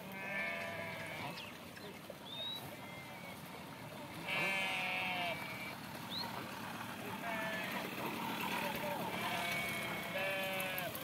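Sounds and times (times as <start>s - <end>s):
sheep bleating: 0.0s - 1.4s, 4.2s - 5.8s, 7.2s - 7.8s, 8.5s - 11.0s.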